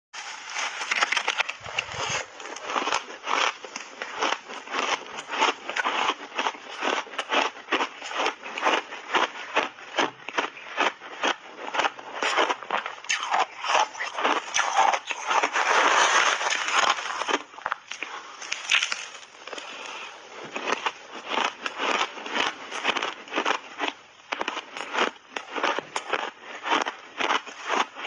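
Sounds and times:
chewing crunchy ice: 0:00.2 - 0:28.0.

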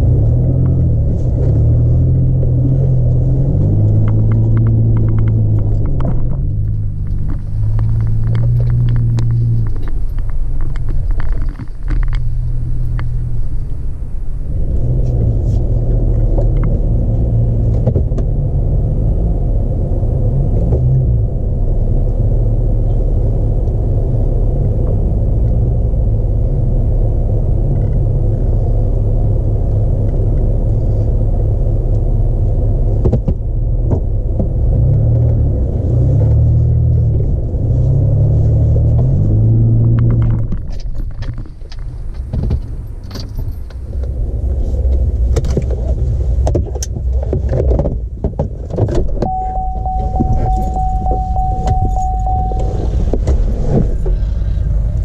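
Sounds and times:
engine and tyre rumble: 0:00.0 - 0:55.0.

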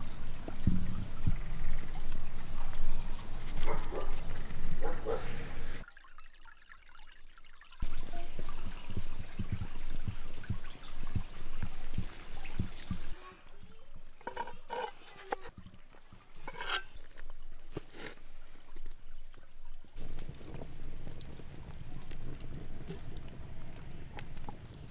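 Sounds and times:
knocks and scrapes in a pot: 0:07.8 - 0:13.1, 0:14.2 - 0:15.5, 0:16.3 - 0:18.2.

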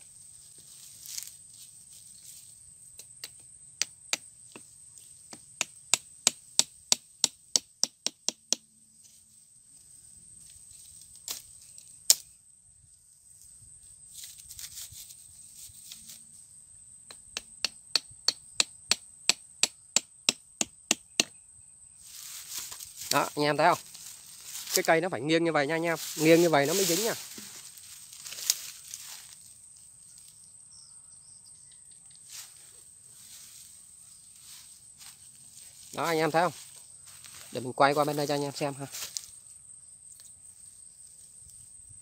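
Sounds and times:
machete knocking bamboo stake: 0:05.3 - 0:08.7, 0:12.0 - 0:12.3, 0:17.1 - 0:21.4.

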